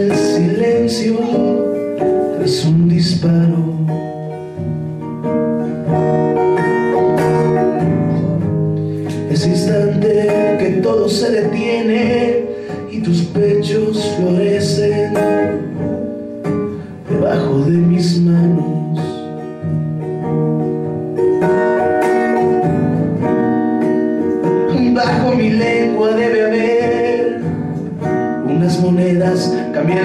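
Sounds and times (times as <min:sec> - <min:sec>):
man singing: 0:00.0 - 0:04.6, 0:06.9 - 0:16.2, 0:16.9 - 0:19.6, 0:24.2 - 0:30.0
acoustic guitar strumming: 0:00.0 - 0:30.0.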